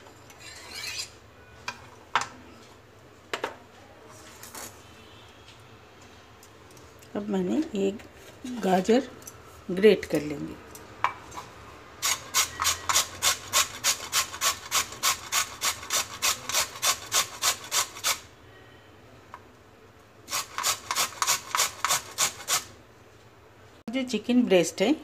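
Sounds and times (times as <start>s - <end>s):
carrot rasping on a grater: 12.0s - 18.3s, 20.3s - 22.7s.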